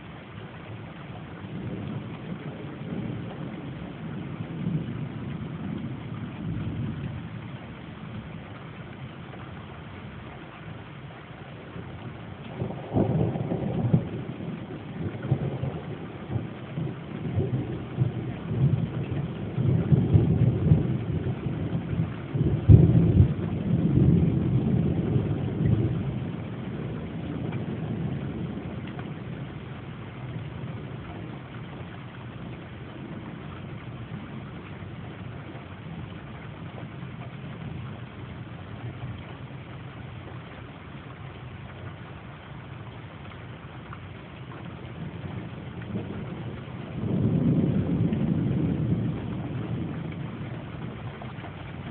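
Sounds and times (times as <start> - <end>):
thunder rumbling: 0.0 - 10.8, 11.5 - 51.9
loud thunder clap: 45.2 - 51.0.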